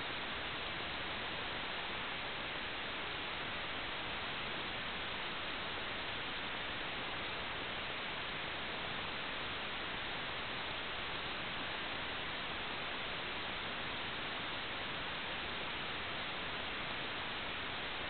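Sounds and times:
static hiss: 0.0 - 18.0.

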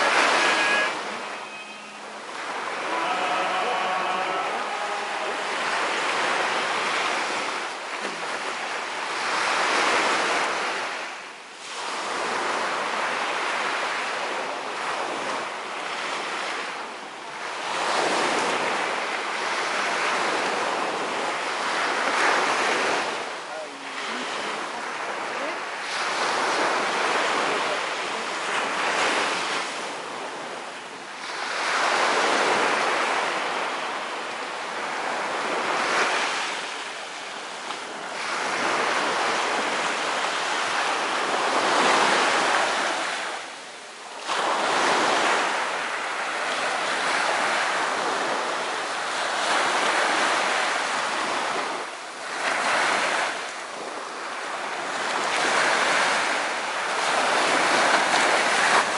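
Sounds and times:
wind on microphone: 0.0 - 11.0
small waves breaking on shore: 0.0 - 58.9.

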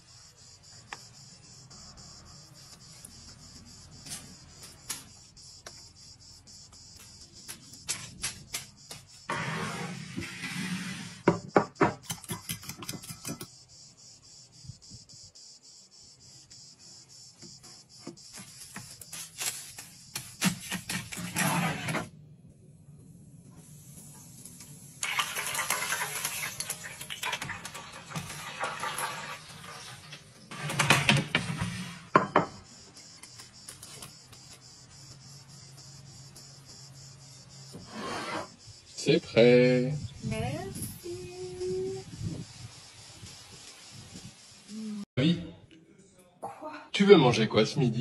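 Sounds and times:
sharp knocks and clicks: 11.3 - 13.5
rough scraping: 20.5 - 22.1
oil sizzling in deep fryer: 23.6 - 30.4.

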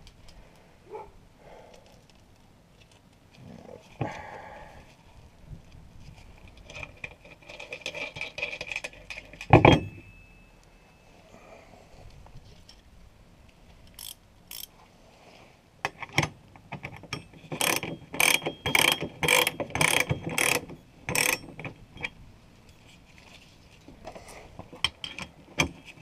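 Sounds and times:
ratchet spanner clicking: 13.9 - 14.7, 17.1 - 22.1.

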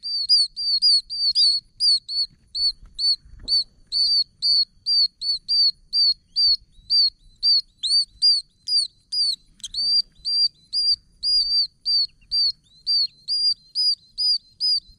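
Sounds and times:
toads calling high-pitched peeps: 0.0 - 14.9.

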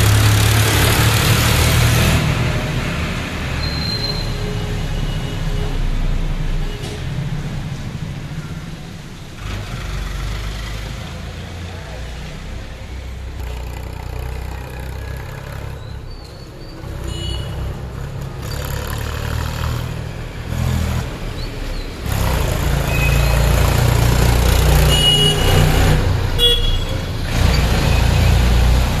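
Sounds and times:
heavy vehicles passing: 0.0 - 29.0.

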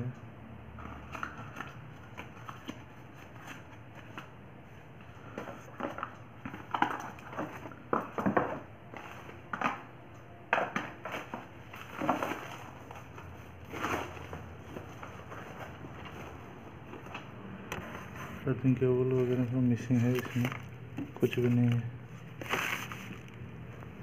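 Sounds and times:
cardboard box rustling: 11.0 - 17.1, 19.0 - 23.9
plastic mailer bag crinkling: 18.7 - 23.9.

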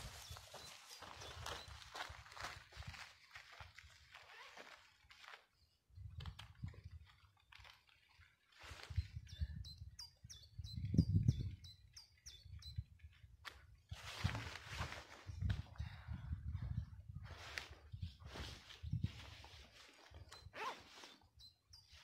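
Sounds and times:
wind rumble on microphone: 6.0 - 7.1, 8.8 - 11.8, 14.0 - 19.6.

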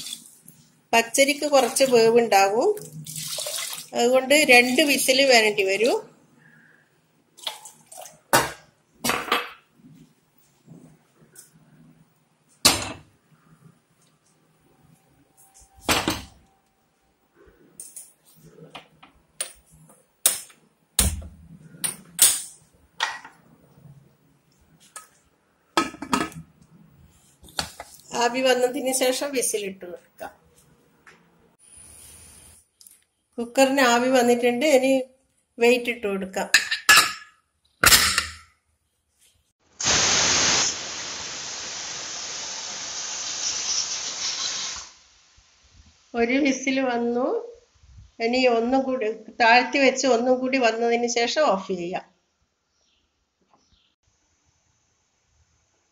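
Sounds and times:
pressure cooker steam hissing: 39.8 - 45.0.

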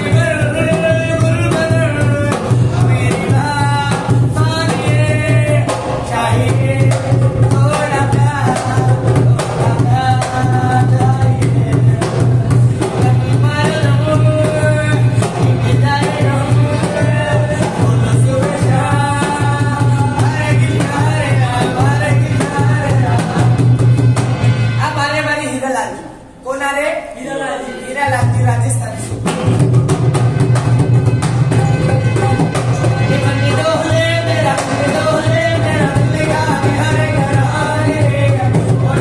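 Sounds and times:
man singing in high voice: 0.0 - 24.1, 31.2 - 39.0
fast hand drum rhythm: 0.0 - 24.8, 28.2 - 39.0
harmonium drone: 30.4 - 36.0.

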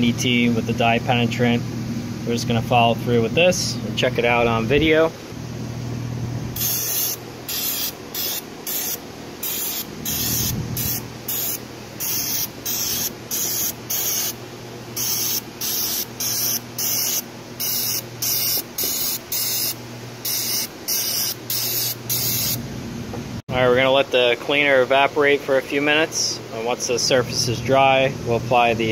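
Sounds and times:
aerosol can spraying in hissing bursts: 6.6 - 14.4, 15.0 - 22.6.

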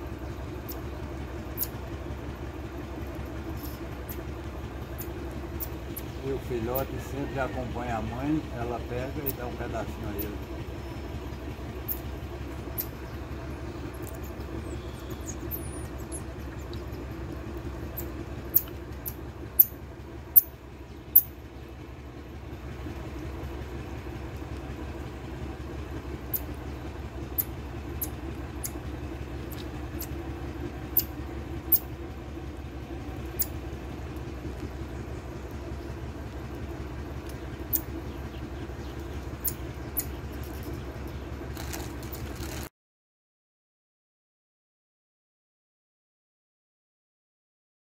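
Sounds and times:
low mechanical hum: 0.0 - 42.7
marmosets chirping: 0.2 - 1.8, 3.5 - 4.3, 4.9 - 17.1, 17.8 - 21.4, 26.2 - 28.8, 29.4 - 30.2, 30.9 - 31.9, 33.2 - 33.6, 37.2 - 41.8.

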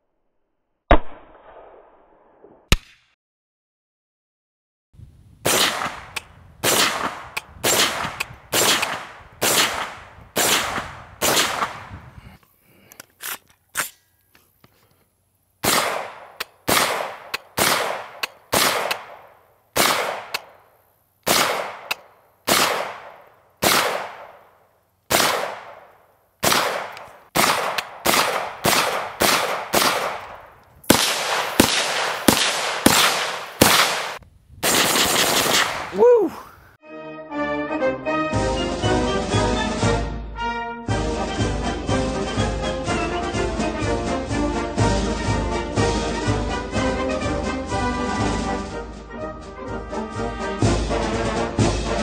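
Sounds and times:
rifle shots with echo: 0.9 - 1.9, 5.4 - 11.9, 15.6 - 20.5, 21.3 - 24.4, 25.1 - 35.9.

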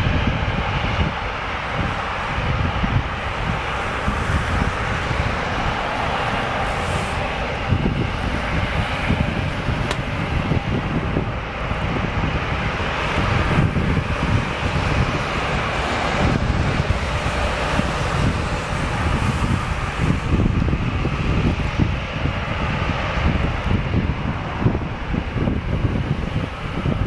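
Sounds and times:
turboprop engines running: 0.0 - 27.0
wind buffeting microphone: 0.0 - 27.0.

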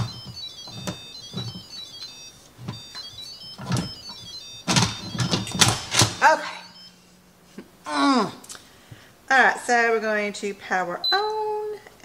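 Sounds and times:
electronic chime tune: 0.0 - 7.1.

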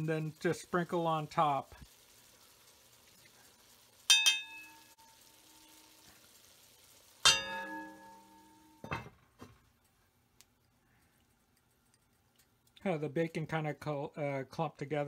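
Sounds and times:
cookware clanging: 4.1 - 5.0, 7.2 - 9.4.

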